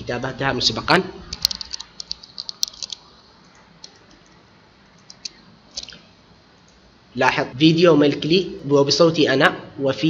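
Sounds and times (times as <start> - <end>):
keyboard and mouse clicking: 1.3 - 6.0.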